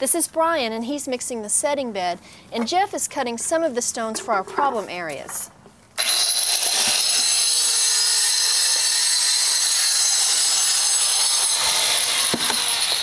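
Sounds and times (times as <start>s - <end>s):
angle grinder cutting stone: 6.0s - 13.0s.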